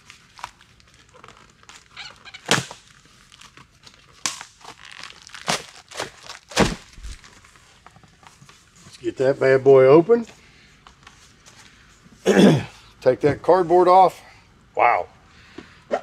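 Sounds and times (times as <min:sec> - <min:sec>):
cardboard tearing: 0:00.3 - 0:07.4
dull thump: 0:06.5 - 0:07.2.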